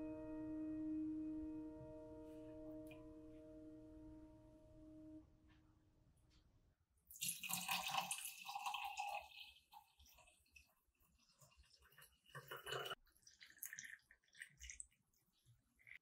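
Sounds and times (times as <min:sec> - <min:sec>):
sparkling water pouring into glass: 0:07.1 - 0:10.7, 0:11.6 - 0:15.2
drink fizzing: 0:07.1 - 0:16.0.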